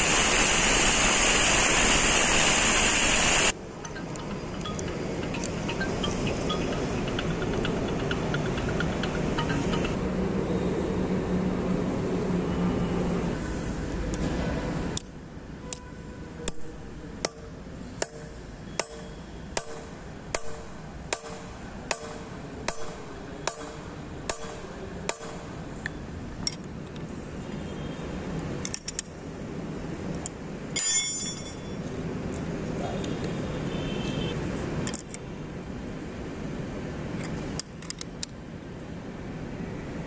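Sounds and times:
hammer striking steel pin: 16.5s - 25.5s, 30.8s - 31.8s
spanner clinking on metal: 25.8s - 27.0s, 28.4s - 29.2s, 30.2s - 31.9s, 34.8s - 35.2s.

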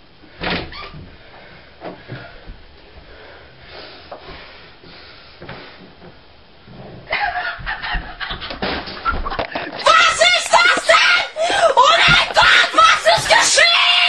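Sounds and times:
shuffling footsteps: 4.1s - 14.0s
faint thuds: 5.4s - 11.0s, 11.8s - 13.6s.

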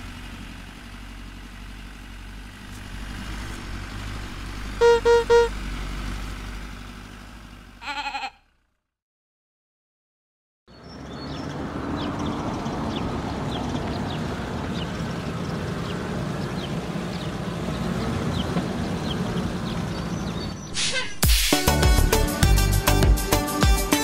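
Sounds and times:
cartoon truck engines running: 0.0s - 9.0s, 10.7s - 24.0s
short high chirps: 4.8s - 5.5s
upbeat music with a beat: 21.5s - 24.0s.

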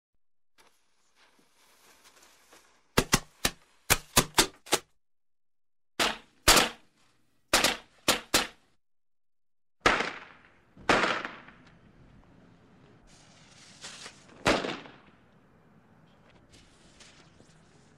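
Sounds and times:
firecrackers banging: 9.9s - 11.8s.

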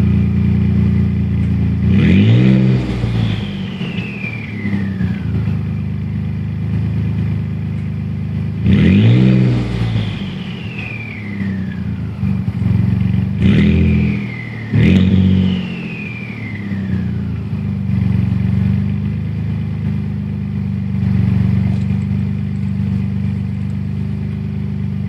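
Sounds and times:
truck engine revving: 1.8s - 7.4s, 8.4s - 25.0s
turbo whistle: 2.3s - 5.7s, 9.3s - 12.6s, 13.4s - 17.7s
truck engine idling: 9.7s - 13.4s, 14.0s - 25.0s.

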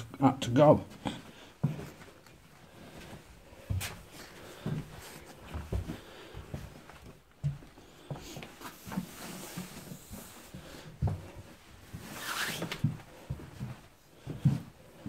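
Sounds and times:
soft footsteps: 0.9s - 15.0s
nylon jacket rustling: 8.5s - 10.8s, 11.4s - 13.3s.

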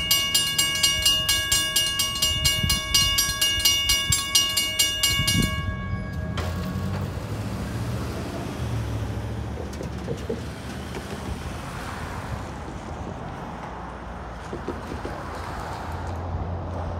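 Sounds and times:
cars crossing railroad crossing: 0.0s - 16.9s
car engine hum and tyre noise: 5.2s - 16.9s.

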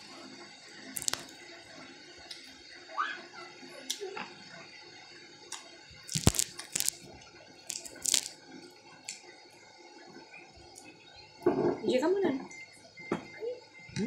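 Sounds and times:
eating noises: 1.0s - 1.3s, 7.7s - 8.3s
crackles and clicks: 1.0s - 1.4s, 5.5s - 8.4s.

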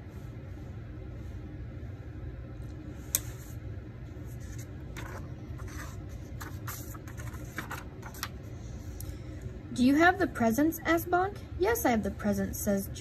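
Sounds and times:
low steady hum: 0.0s - 13.0s
hand rustling paper pages: 3.0s - 8.4s.

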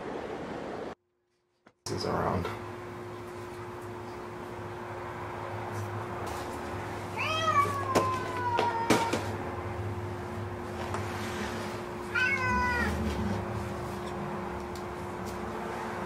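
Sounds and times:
cat meowing: 7.1s - 9.3s, 12.1s - 13.0s.

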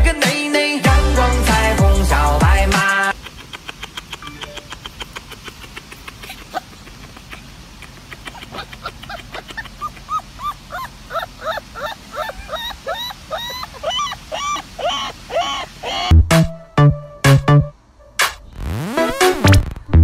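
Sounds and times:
heavy electronic beat: 0.0s - 3.2s, 16.1s - 18.4s
puppy yipping: 3.5s - 16.1s.

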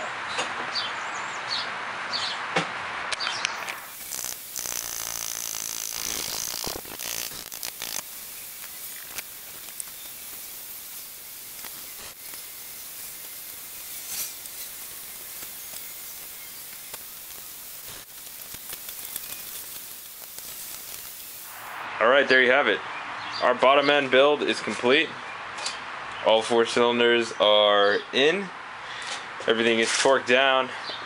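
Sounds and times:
steady hiss: 3.5s - 22.0s
ratchet clicking: 3.6s - 21.6s.

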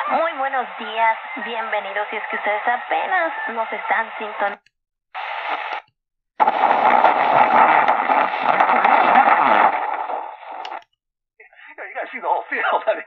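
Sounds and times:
radio static hiss: 0.0s - 4.6s, 5.2s - 10.9s.

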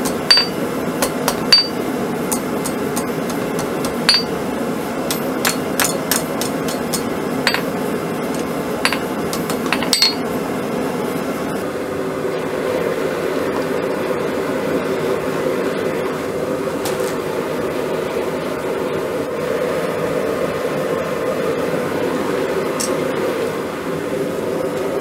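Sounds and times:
hammer ringing on hot steel: 0.0s - 4.4s, 5.1s - 10.4s
steady background noise: 0.0s - 25.0s.

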